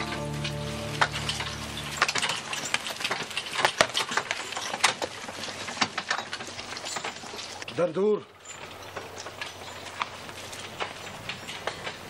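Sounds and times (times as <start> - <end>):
background music: 0.0 - 2.8
horse hooves and carriage wheels: 0.0 - 12.0.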